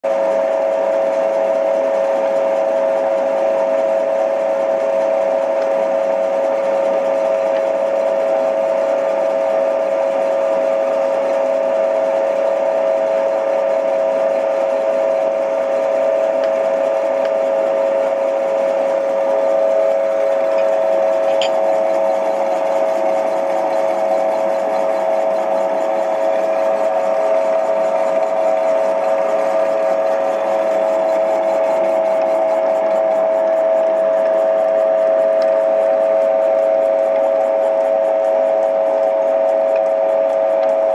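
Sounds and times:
boring machine whining: 0.1s - 40.9s.

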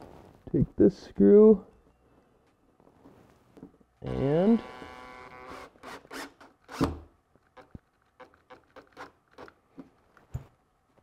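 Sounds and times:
cordless drill driving screw: 4.1s - 7.0s.

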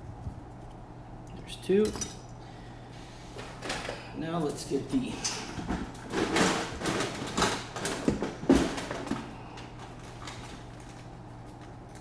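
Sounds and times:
steady low hum: 0.0s - 12.0s
tools clattering on workbench: 1.8s - 2.3s.

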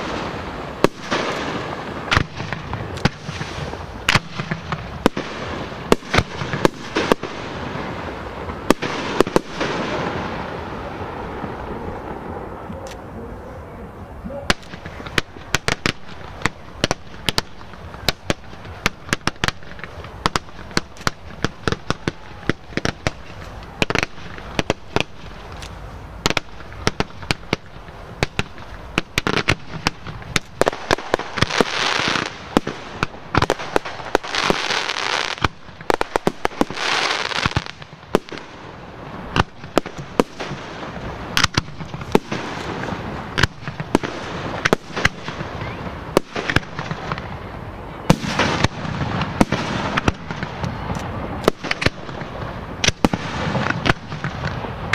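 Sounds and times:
fireworks bangs and pops: 0.0s - 13.2s, 14.2s - 54.9s
fireworks hissing and crackling: 0.0s - 54.9s.

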